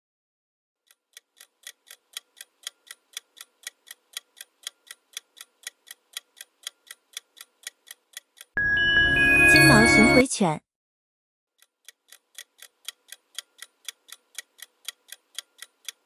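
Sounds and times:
clock-like ticking: 0.8s - 8.6s, 11.6s - 16.0s.

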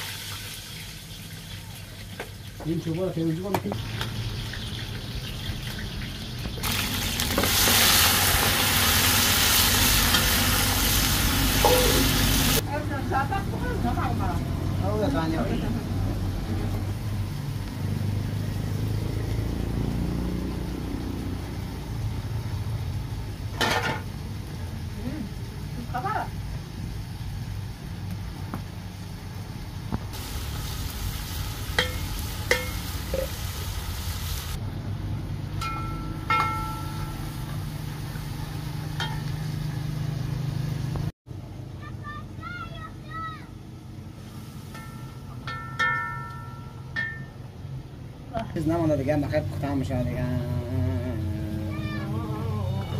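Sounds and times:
metal cookware clinking: 23.5s - 24.1s, 31.7s - 33.4s, 35.6s - 37.6s, 38.9s - 39.5s, 44.7s - 47.5s
low motor hum: 49.6s - 52.9s.

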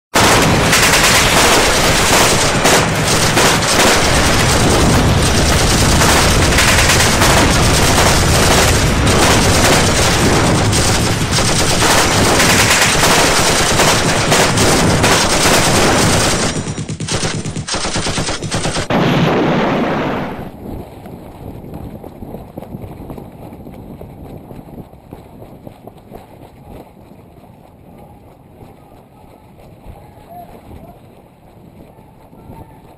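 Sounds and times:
automatic gunfire: 0.2s - 20.5s.

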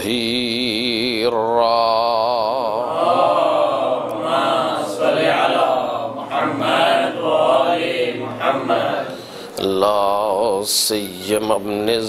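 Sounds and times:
man chanting: 0.0s - 3.8s, 8.1s - 12.0s.

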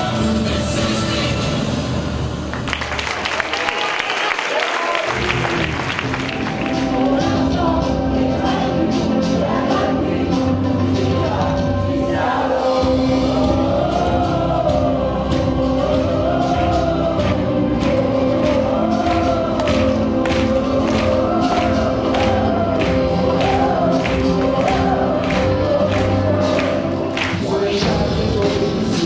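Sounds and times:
held backing chord: 5.1s - 29.0s
choir singing: 6.2s - 29.0s.

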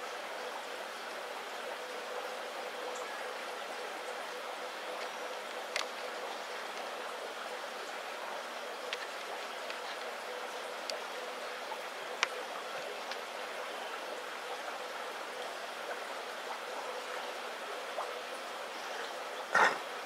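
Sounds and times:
aquarium filter bubbling: 0.1s - 20.0s.

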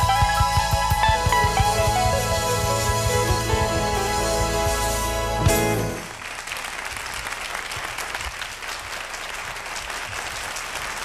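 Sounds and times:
jazz band playing: 0.0s - 6.2s
audience applauding: 5.5s - 11.0s.

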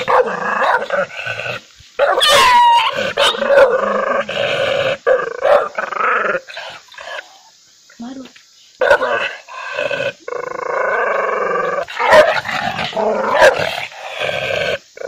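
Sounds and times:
dog barking and growling: 0.0s - 7.5s, 8.8s - 15.0s
dog yelping: 2.0s - 3.8s.

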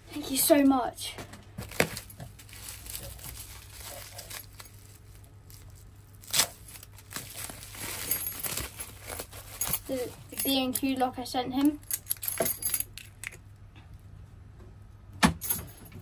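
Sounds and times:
bubble wrap crinkling: 1.6s - 10.5s.

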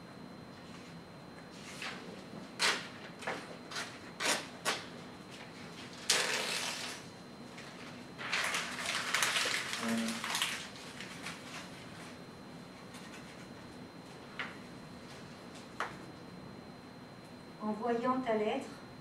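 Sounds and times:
paper being crumpled: 5.9s - 7.0s, 7.7s - 12.1s
paper rustling: 7.6s - 12.2s.

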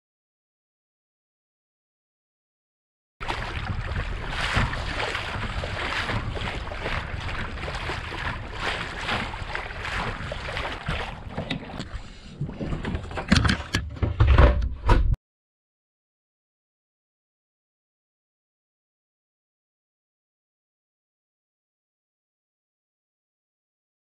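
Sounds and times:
wind on microphone: 3.2s - 11.8s
water washing past hull: 3.2s - 13.6s.

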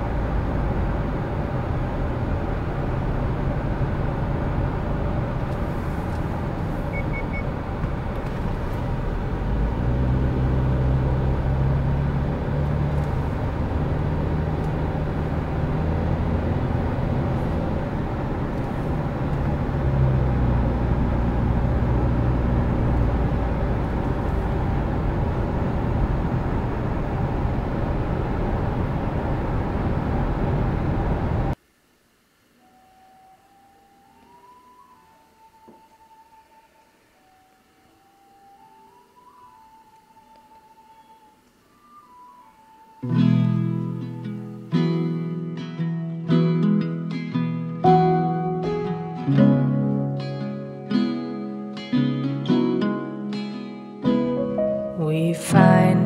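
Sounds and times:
tyre and road noise: 0.0s - 31.6s
low engine hum: 0.0s - 31.7s, 54.4s - 56.0s.

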